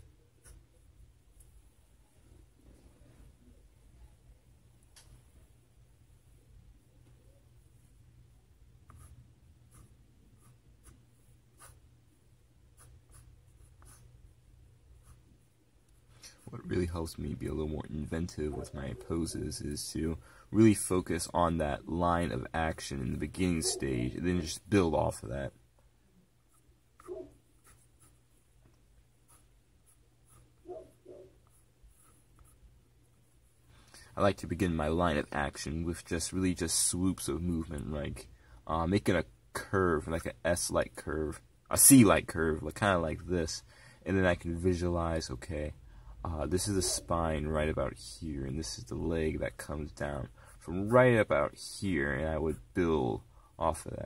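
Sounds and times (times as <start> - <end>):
pencil scratching on paper: 0.0 - 1.6, 8.8 - 12.0, 12.7 - 16.7, 26.5 - 28.4, 29.2 - 33.7.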